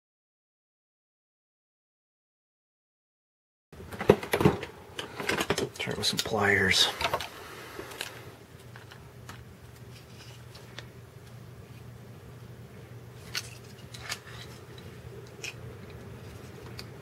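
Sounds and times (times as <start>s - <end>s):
steady low hum: 3.8s - 17.0s.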